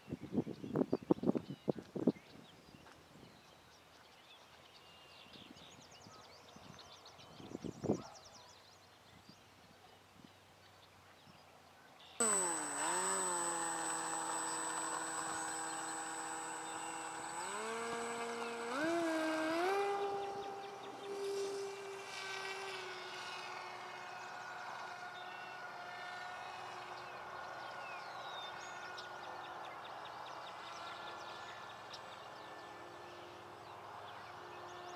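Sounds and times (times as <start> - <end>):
electric motor and propeller whining: 12.2 - 34.9.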